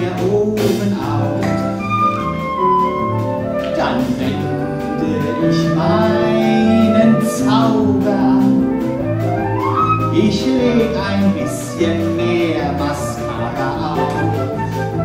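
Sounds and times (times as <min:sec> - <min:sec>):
stage musical band music: 0:00.0 - 0:15.0.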